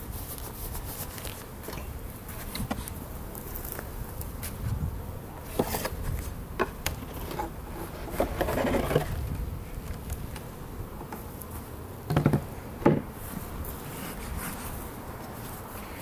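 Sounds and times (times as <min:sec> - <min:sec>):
hive cover scraping: 0:05.4 - 0:11.7.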